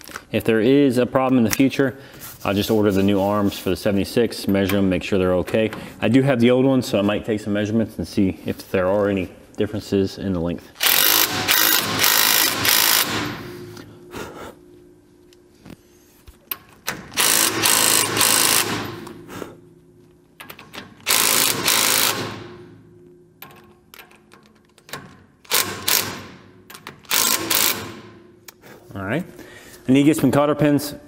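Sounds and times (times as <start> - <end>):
impact wrench hammering: 10.8 - 13.8, 16.9 - 19.3, 20.4 - 22.8, 23.4 - 28.5.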